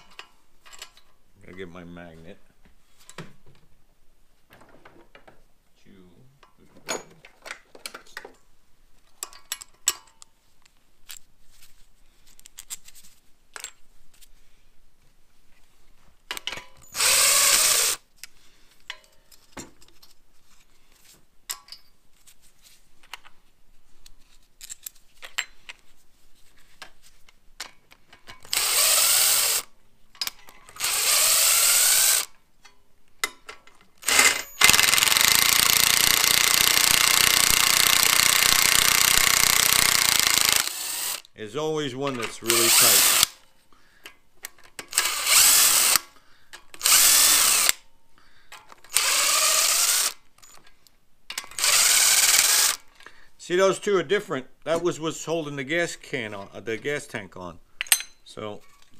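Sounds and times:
tools and bolts clicking: 0.0s - 1.2s, 9.1s - 10.3s, 18.8s - 20.2s, 27.6s - 41.3s, 48.5s - 53.1s, 57.8s - 58.9s
power driver motor revving: 17.0s - 18.0s, 28.5s - 29.7s, 30.8s - 32.3s, 34.0s - 41.2s, 42.6s - 43.3s.

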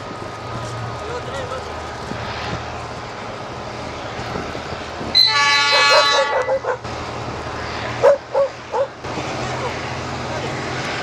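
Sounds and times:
locomotive engine droning: 0.0s - 11.0s
multi-tone air horn blast: 5.1s - 6.7s.

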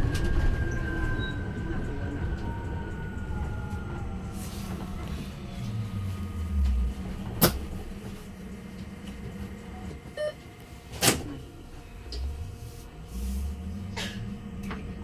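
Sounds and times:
electric bus motor hum: 0.0s - 15.0s
road rumble: 1.4s - 10.2s, 11.2s - 15.0s
short electronic beep: 10.2s - 10.4s.

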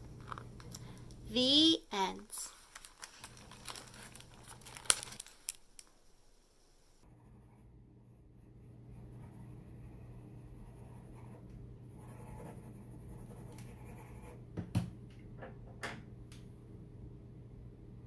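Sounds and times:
pencil scratching on paper: 7.0s - 14.4s.

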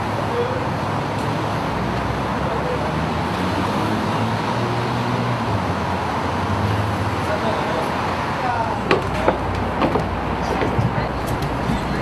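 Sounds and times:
distant road traffic hum: 0.0s - 12.0s
faint voices: 10.2s - 12.0s.

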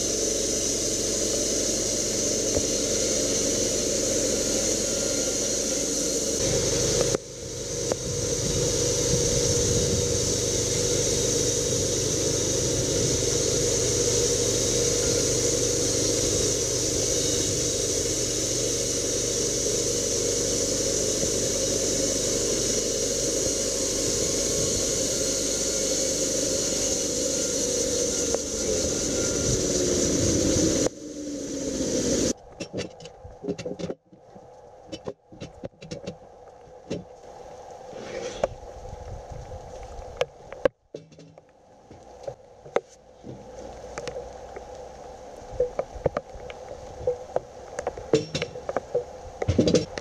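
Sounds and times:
band sawmill cutting wood: 0.0s - 32.4s
whir of spinning wheels: 0.0s - 32.4s.

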